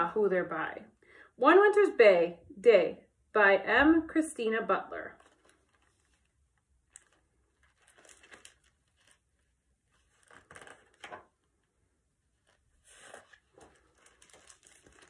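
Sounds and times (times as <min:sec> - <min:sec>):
book pages rustling: 0:05.1 - 0:15.0.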